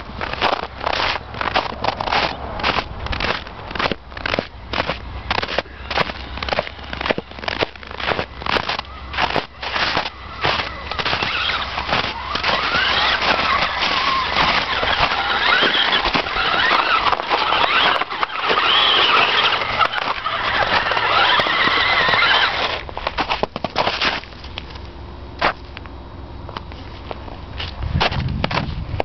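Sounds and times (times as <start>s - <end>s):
snow crunching under tyres: 0.0s - 29.0s
toy car motor whining: 8.2s - 22.9s.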